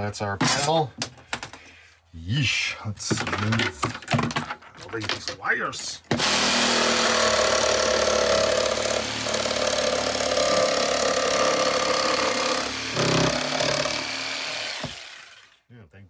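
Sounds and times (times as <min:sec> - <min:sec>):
jigsaw cutting panelling: 0:06.1 - 0:15.6.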